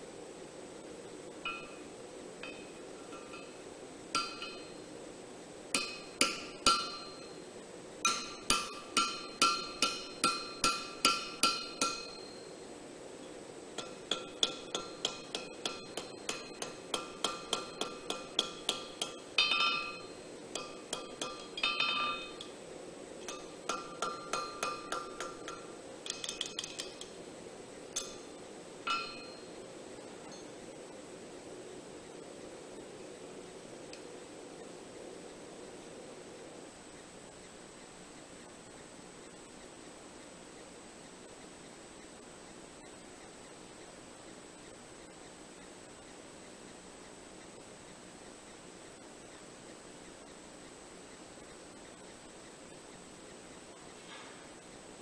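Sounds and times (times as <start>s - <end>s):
hammer striking steel on anvil: 1.5s - 4.9s, 5.8s - 7.4s, 8.0s - 12.6s, 13.8s - 22.6s, 23.2s - 27.2s, 28.0s - 29.6s.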